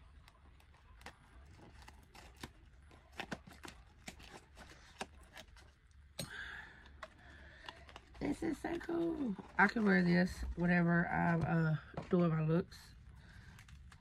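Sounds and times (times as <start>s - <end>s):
taped package being opened: 0.0s - 6.1s.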